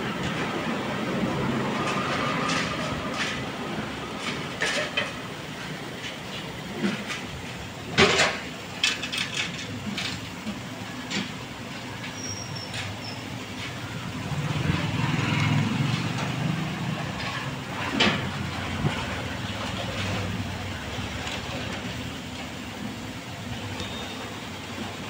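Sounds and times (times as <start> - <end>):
sharp knocks and clatters: 4.2 - 5.2
low vehicle rumble: 9.5 - 25.0.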